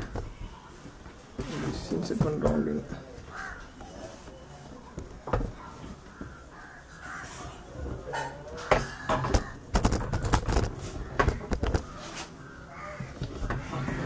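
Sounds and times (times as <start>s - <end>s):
crows cawing: 3.2s - 4.0s, 5.6s - 14.0s.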